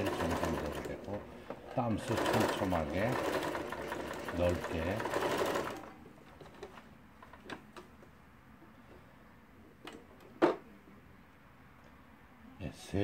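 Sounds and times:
sewing machine stitching: 0.0 - 5.9.

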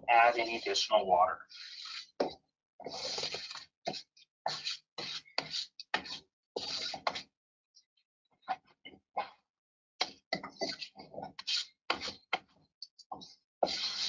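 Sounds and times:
hand tool scraping grout: 0.1 - 0.9, 1.5 - 7.2, 10.6 - 12.3, 13.6 - 14.0.

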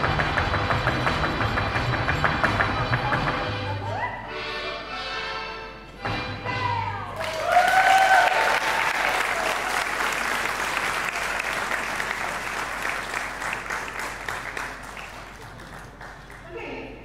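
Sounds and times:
audience applauding: 7.2 - 16.5
person whooping: 7.3 - 9.6.

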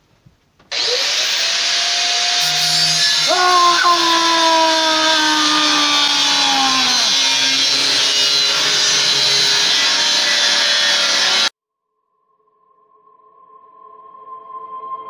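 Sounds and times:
angle grinder cutting metal: 0.7 - 11.5
man shouting: 3.2 - 7.4.

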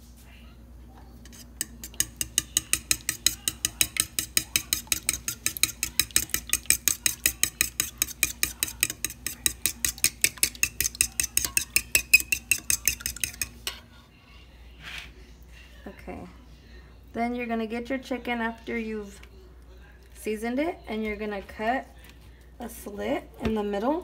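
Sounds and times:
fork clicking against bowl: 1.6 - 13.7.

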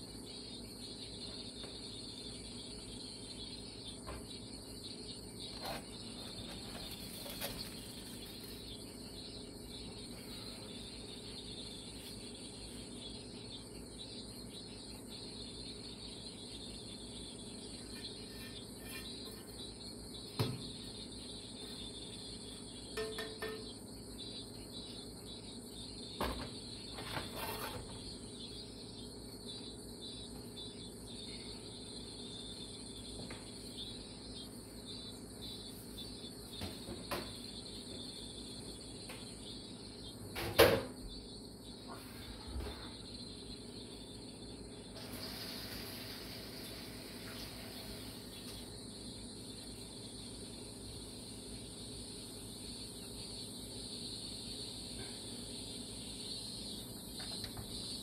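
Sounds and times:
high-pitched hiss: 44.9 - 48.7.

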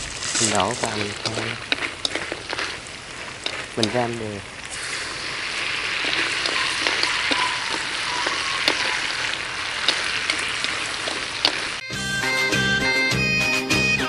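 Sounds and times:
crabs sizzling in a wok: 0.0 - 11.8
chopsticks tapping a wok: 0.4 - 2.8, 3.4 - 4.0, 6.0 - 11.7.

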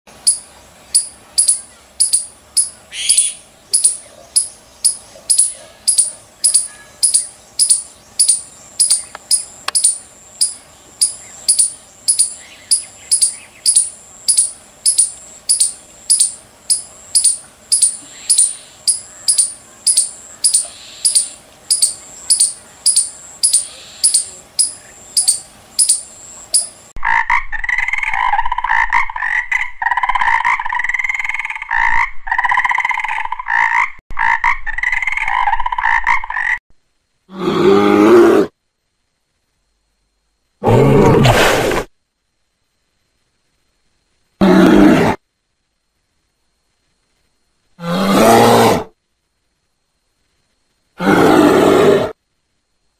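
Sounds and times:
squirrel chirping: 0.2 - 26.9
frog croaking: 1.0 - 36.6.

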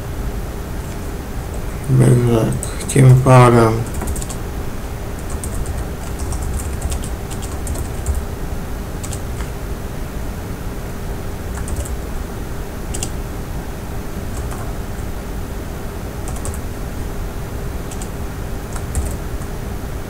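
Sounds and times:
steady background hum: 0.0 - 20.0
keyboard typing: 2.4 - 4.4, 5.2 - 8.3, 9.0 - 9.6, 11.5 - 12.0, 12.9 - 13.2, 14.3 - 14.8, 16.3 - 16.6, 17.9 - 19.5.

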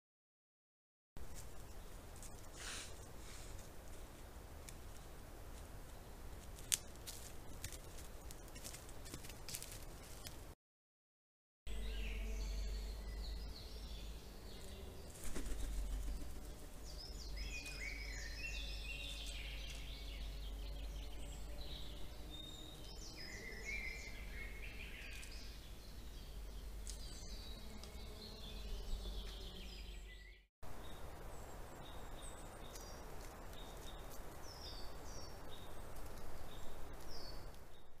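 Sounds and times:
songbirds singing and chirping: 1.2 - 10.5, 11.7 - 38.0
steady low hum: 11.7 - 23.0.

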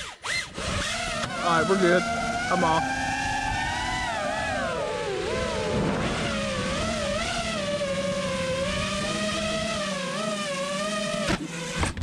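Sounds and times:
drone motors whining: 0.0 - 12.0.

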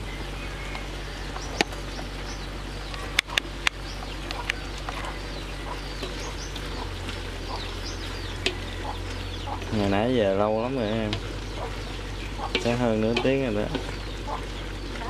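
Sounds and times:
birds chirping: 0.0 - 15.0
metal spatula clacking against wok: 12.5 - 13.9.

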